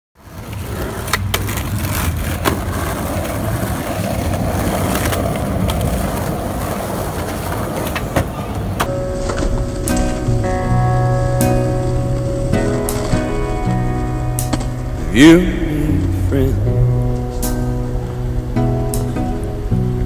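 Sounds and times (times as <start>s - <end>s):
skateboard clacking: 0.2s - 14.8s
skateboard wheels rolling on concrete: 0.2s - 20.0s.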